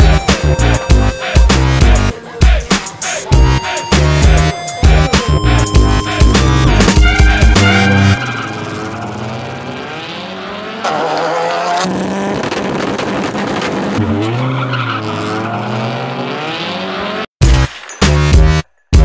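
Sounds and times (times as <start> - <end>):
electronic music with heavy beat: 0.0 - 9.1, 17.4 - 19.0
race car engine revving: 5.5 - 17.3.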